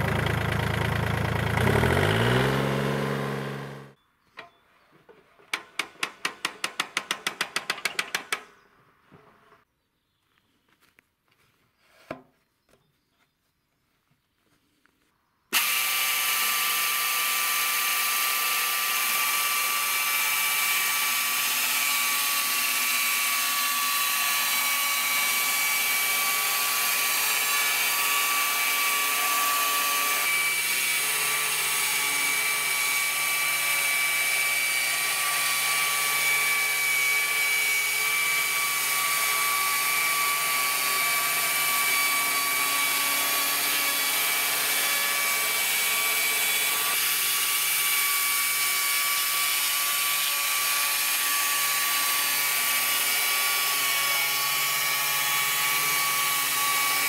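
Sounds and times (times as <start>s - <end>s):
electric chainsaw cutting log: 0.0s - 4.0s, 15.5s - 57.0s.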